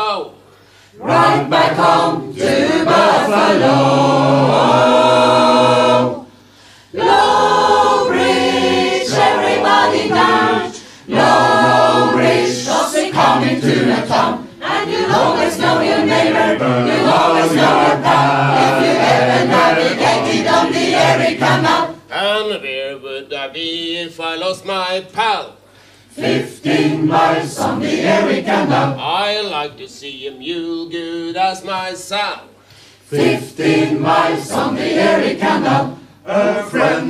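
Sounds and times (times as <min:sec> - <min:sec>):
mixed choir singing in harmony: 0:01.0 - 0:22.1, 0:26.1 - 0:29.0, 0:33.0 - 0:37.0.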